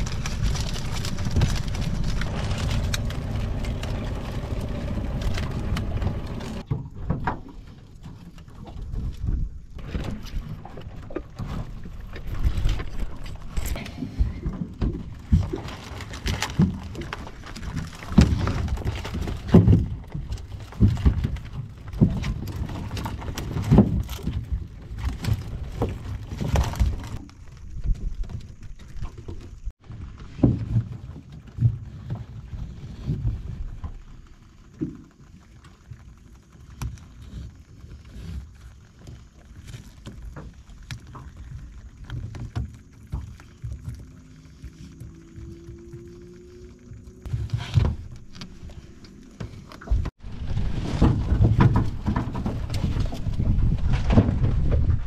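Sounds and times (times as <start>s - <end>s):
knocks and thumps on boat: 0.0s - 27.2s, 27.8s - 34.0s, 47.3s - 55.0s
water rumble: 0.0s - 55.0s
wind: 0.0s - 55.0s.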